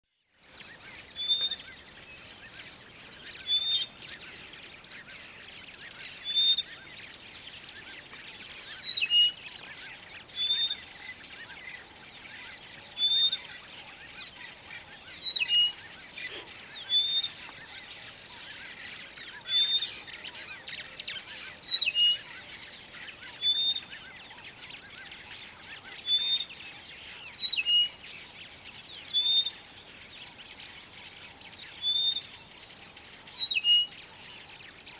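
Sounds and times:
bird whistled calls: 0:01.1 - 0:01.8, 0:03.4 - 0:04.0, 0:10.4 - 0:10.9, 0:15.1 - 0:20.5, 0:29.1 - 0:29.6, 0:31.8 - 0:32.3.

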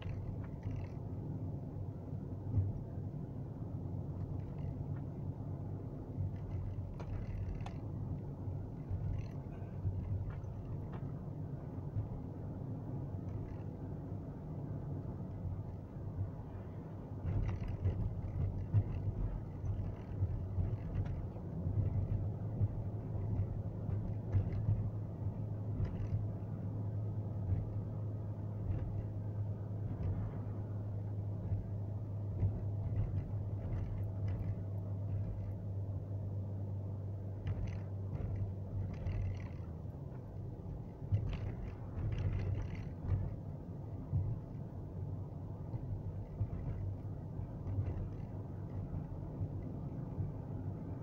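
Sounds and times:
light rattles and knocks: 0:00.0 - 0:03.2, 0:03.8 - 0:51.0
car road rumble from inside: 0:00.0 - 0:51.0.

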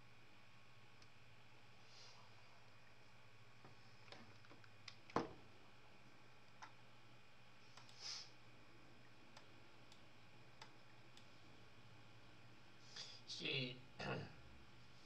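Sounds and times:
faint clicks and ticks: 0:04.0 - 0:05.2, 0:06.4 - 0:06.8, 0:07.7 - 0:08.0, 0:09.0 - 0:11.4
short soft hiss: 0:07.6 - 0:08.4.

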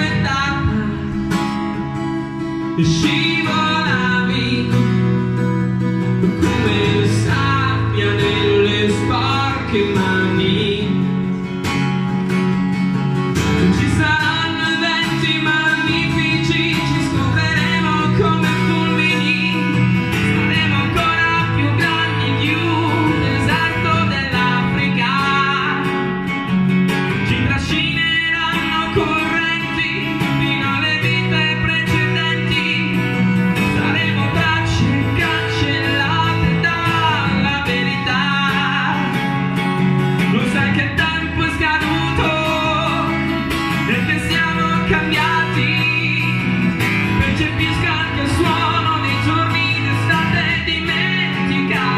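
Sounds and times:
acoustic guitar: 0:00.0 - 0:51.9
man singing: 0:00.0 - 0:51.9.

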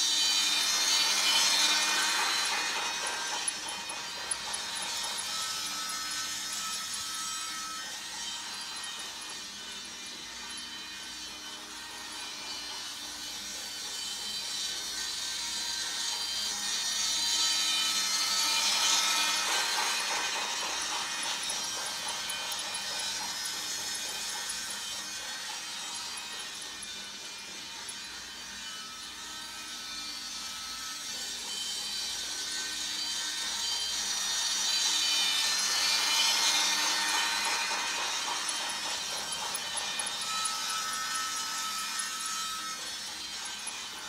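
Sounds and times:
toy train motor whirring: 0:00.0 - 0:44.0.

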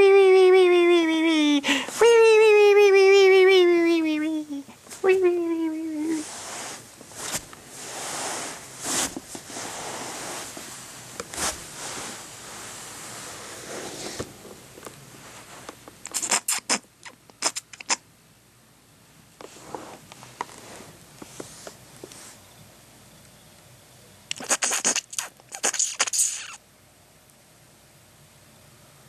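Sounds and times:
puppet scuffing across carpet: 0:06.1 - 0:14.4, 0:19.4 - 0:22.4.

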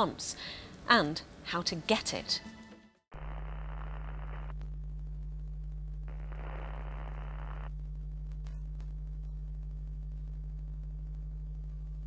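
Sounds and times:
low electrical hum: 0:03.1 - 0:12.0
static hiss bursts: 0:03.2 - 0:12.0.

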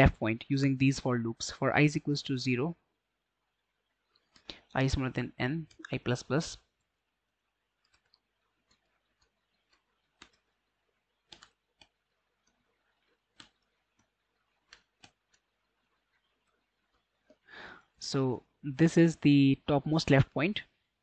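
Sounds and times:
keyboard keystrokes: 0:11.3 - 0:11.9.

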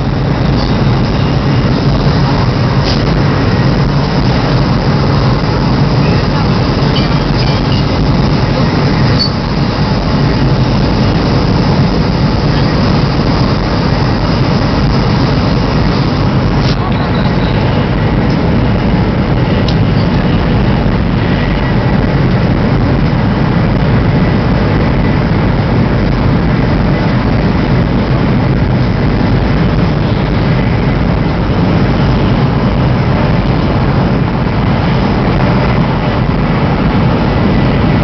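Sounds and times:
faint high whine: 0:00.0 - 0:17.9
train rumble inside carriage: 0:00.0 - 0:38.0.

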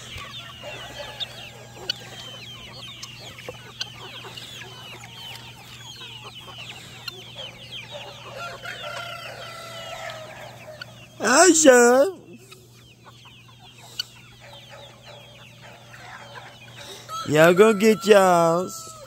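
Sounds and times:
chickens clucking and chirping: 0:00.0 - 0:19.0
rooster crowing: 0:08.2 - 0:10.8, 0:17.1 - 0:19.0.

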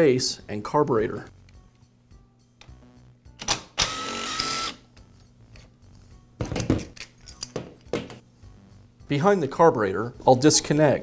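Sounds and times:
power screwdriver running: 0:03.8 - 0:04.8.

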